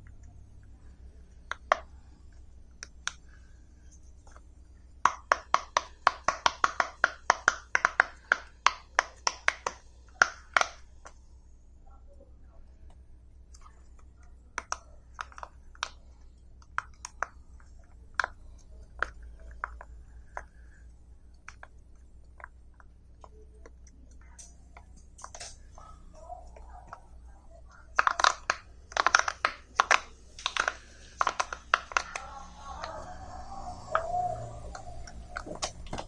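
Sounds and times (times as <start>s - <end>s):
fidget toy bubbles popping: 5.0s - 11.2s, 13.5s - 36.0s.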